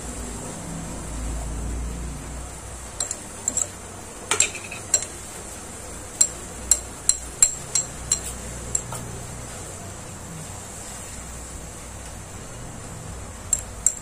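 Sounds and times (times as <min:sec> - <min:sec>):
steady low hum: 0:00.0 - 0:14.0
spoon clinking against glass: 0:03.0 - 0:05.2, 0:06.2 - 0:09.0, 0:13.5 - 0:14.0.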